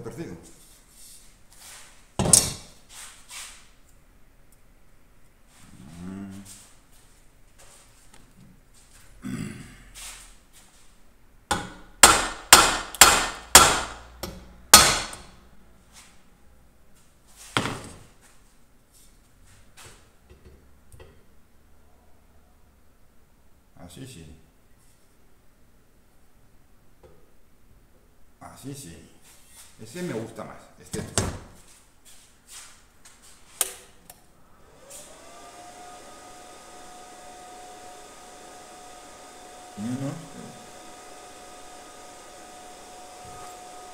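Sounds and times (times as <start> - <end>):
hammer striking metal frame: 11.5 - 15.3
welding machine cooling fan whine: 34.7 - 43.9.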